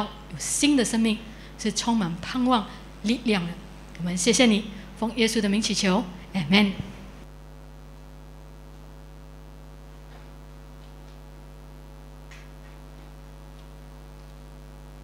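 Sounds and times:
low electrical mains hum: 0.0 - 15.0.

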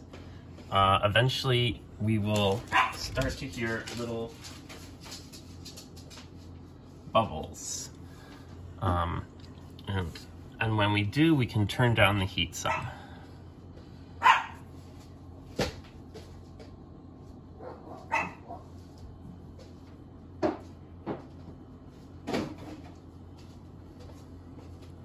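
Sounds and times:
low steady hum: 0.0 - 25.0
dog barking: 2.7 - 3.1, 12.7 - 12.9, 14.2 - 14.6, 17.6 - 18.7.

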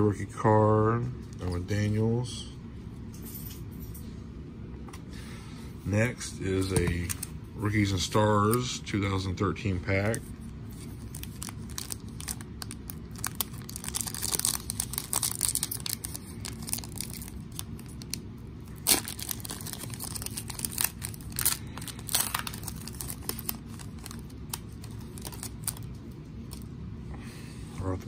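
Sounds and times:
foil wrapper crinkling: 10.7 - 26.7.

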